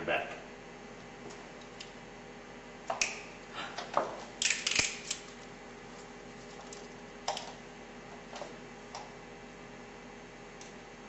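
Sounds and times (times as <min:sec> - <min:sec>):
handcuffs clicking shut: 0:04.4 - 0:05.2.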